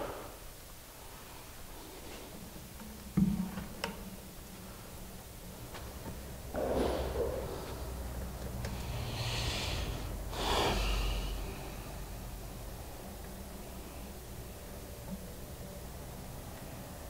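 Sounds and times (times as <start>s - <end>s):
low steady hum: 0.0s - 17.0s
person exhaling hard through nose: 8.8s - 12.0s.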